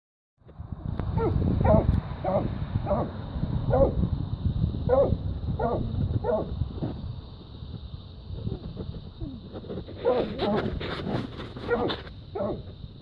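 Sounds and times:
steady low rumble: 0.4s - 11.4s
dog barking: 1.2s - 3.1s, 3.7s - 4.0s, 4.9s - 6.5s, 10.0s - 10.6s, 11.6s - 12.7s.

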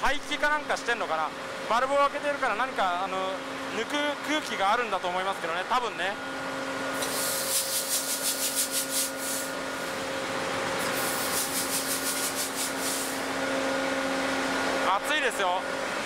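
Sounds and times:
generator engine droning: 0.0s - 16.0s
rapid pulsing hiss: 7.0s - 10.0s, 10.8s - 13.3s.

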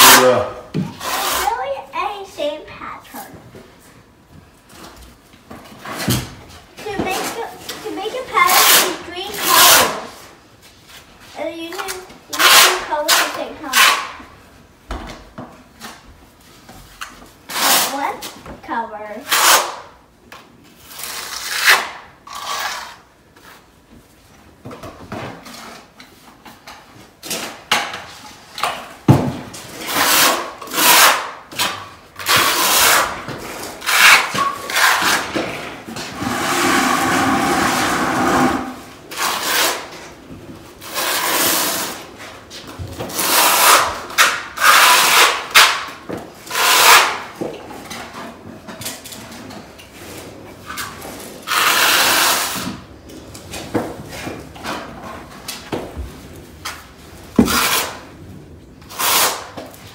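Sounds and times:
trowel scraping mortar on concrete: 0.0s - 1.9s, 6.9s - 10.2s, 11.7s - 14.2s, 19.2s - 19.8s, 20.9s - 23.1s, 29.8s - 40.1s, 40.8s - 42.1s, 43.0s - 45.8s, 46.4s - 47.4s, 50.2s - 52.8s, 57.4s - 58.1s, 58.9s - 59.6s.

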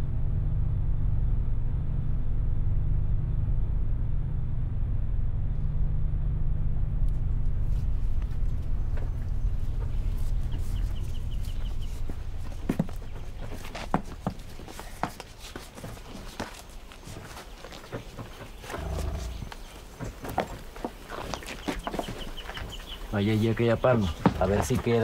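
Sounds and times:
low engine rumble: 0.0s - 15.1s, 18.0s - 20.5s.

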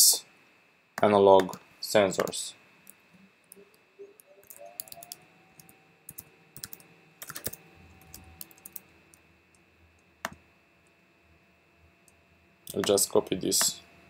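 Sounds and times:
typing on a keyboard: 4.4s - 8.8s.

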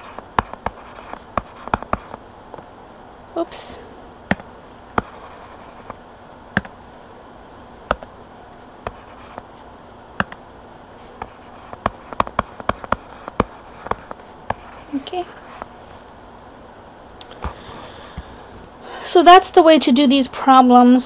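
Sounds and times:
stylus tapping on tablet screen: 0.0s - 2.7s, 4.3s - 6.8s, 7.9s - 8.1s, 10.2s - 10.4s, 11.2s - 14.8s.

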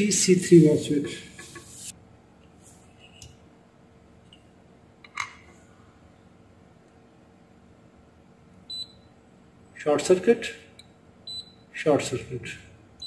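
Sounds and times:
multimeter high beep: 8.7s - 9.1s, 11.3s - 11.7s.

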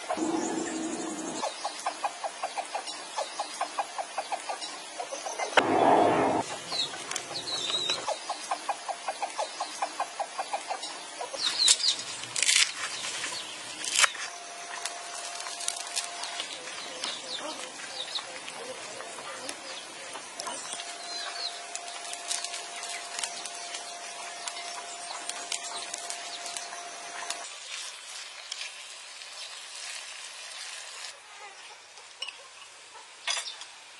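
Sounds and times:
chickens clucking: 0.0s - 11.5s
steady thin tone: 5.6s - 6.4s.

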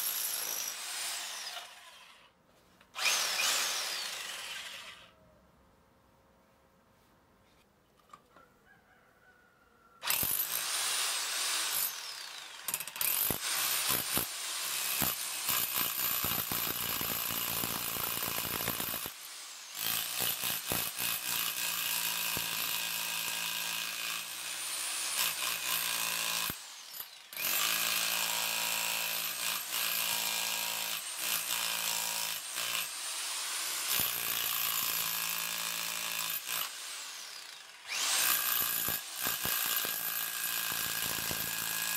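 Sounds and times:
rotary hammer chiselling masonry: 10.1s - 19.2s, 19.8s - 36.7s, 37.9s - 41.9s.

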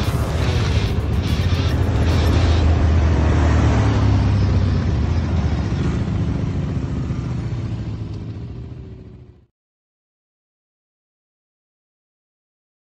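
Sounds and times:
quad bike engines droning: 0.0s - 9.5s.

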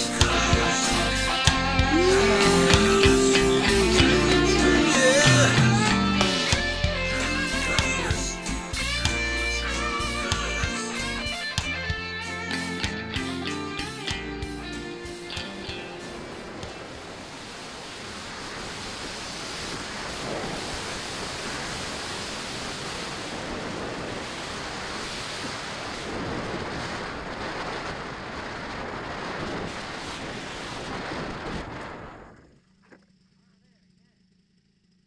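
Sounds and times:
wind hissing over microphone: 15.0s - 32.6s.

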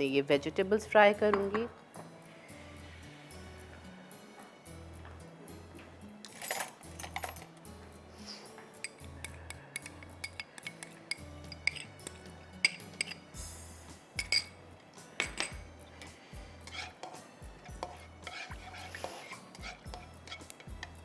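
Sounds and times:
soft background music: 0.0s - 21.0s
utensils clinking against a wok: 8.4s - 13.4s, 14.2s - 14.6s, 15.2s - 21.0s.

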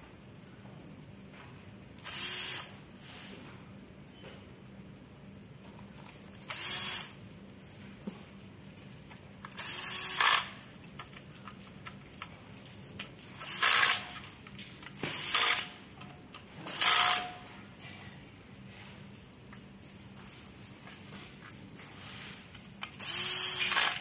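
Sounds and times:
cordless drill bursts: 2.0s - 2.7s, 6.5s - 7.1s, 9.5s - 10.6s, 13.4s - 14.1s, 15.2s - 15.7s, 16.7s - 17.3s, 23.0s - 24.0s.

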